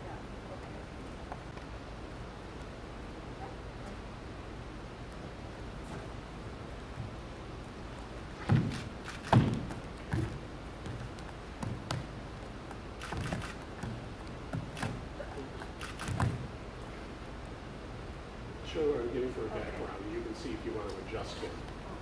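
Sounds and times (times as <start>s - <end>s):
steady low hum: 0.0s - 22.0s
bare feet thudding on floor: 8.4s - 12.1s.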